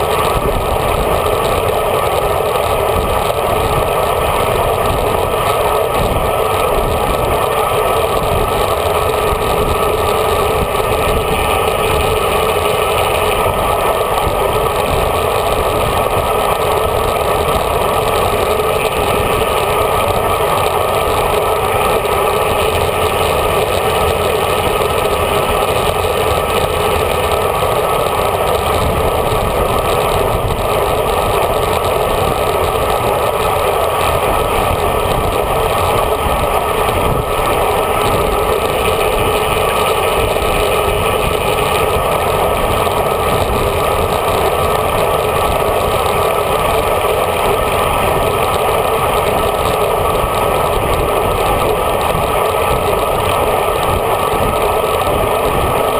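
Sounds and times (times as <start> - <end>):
road noise from bike: 0.0 - 55.9
wind noise: 0.0 - 55.9.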